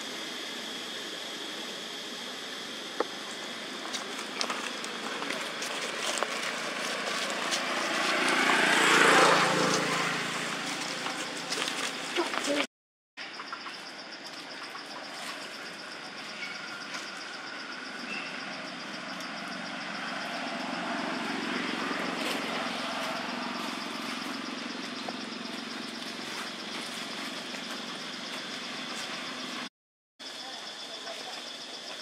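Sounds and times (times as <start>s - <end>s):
vehicle engine running: 2.8s - 12.7s, 15.4s - 29.7s
high pulsing buzz: 14.8s - 29.7s.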